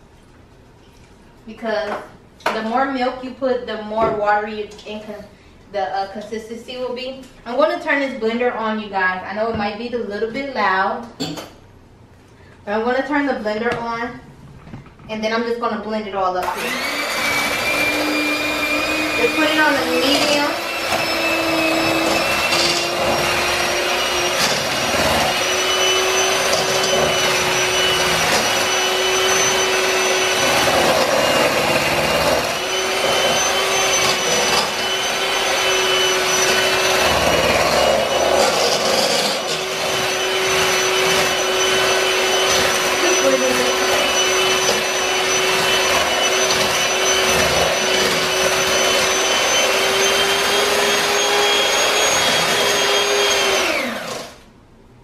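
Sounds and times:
electric hand mixer running: 16.4 - 54.5
beaters scraping a pot: 18.9 - 50.2.

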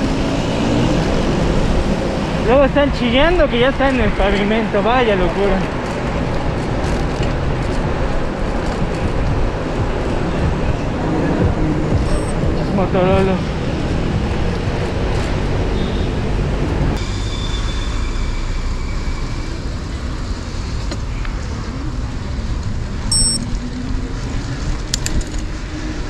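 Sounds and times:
rumble of passing traffic: 0.0 - 26.0.

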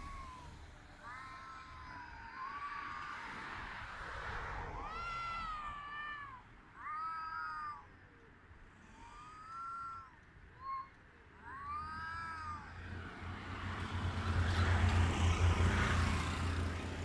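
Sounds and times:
cats yowling: 0.0 - 13.3.

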